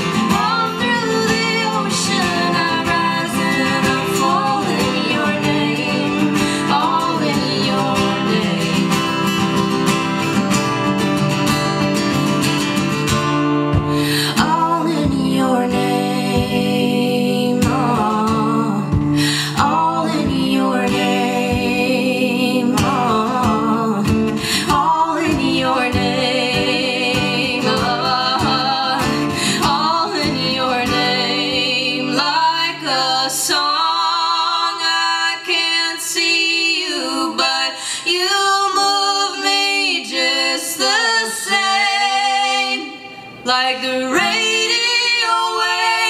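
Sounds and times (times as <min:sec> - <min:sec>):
woman singing wordless melody: 0:00.0 - 0:09.9, 0:13.9 - 0:46.0
strummed acoustic guitar: 0:00.0 - 0:34.1.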